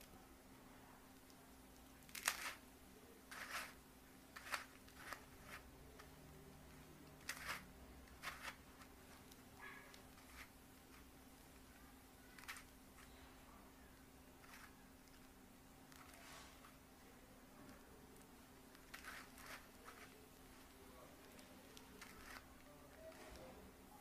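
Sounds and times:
faint hum: 0.0s - 24.0s
plastic puzzle clacking: 1.2s - 2.6s, 3.3s - 6.2s, 7.0s - 11.1s, 12.2s - 13.1s, 14.4s - 16.8s, 17.6s - 23.6s.

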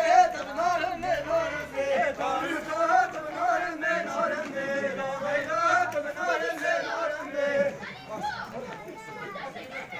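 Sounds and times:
man singing: 0.0s - 7.5s.

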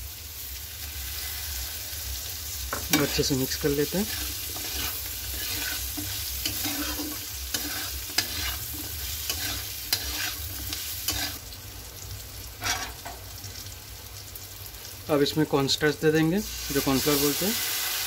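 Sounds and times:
food sizzling: 0.0s - 18.0s
metal spatula scraping a pan: 2.7s - 11.4s, 12.6s - 13.2s.

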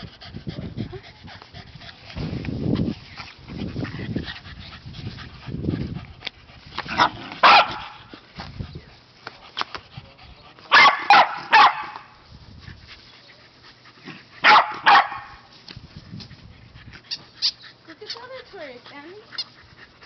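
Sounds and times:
dog barking: 6.9s - 8.0s, 10.7s - 12.1s, 14.4s - 15.4s.

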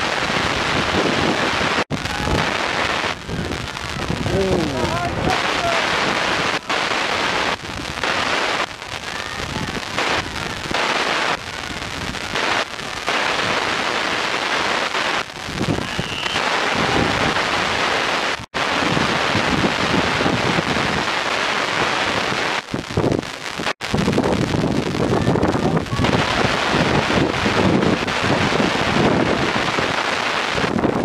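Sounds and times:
wind buffeting microphone: 0.0s - 10.8s, 15.3s - 21.2s, 21.8s - 31.0s.

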